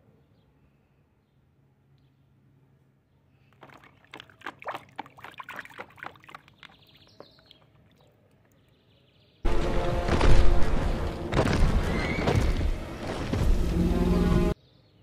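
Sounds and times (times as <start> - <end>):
water splashing in a plastic tub: 3.4 - 8.7.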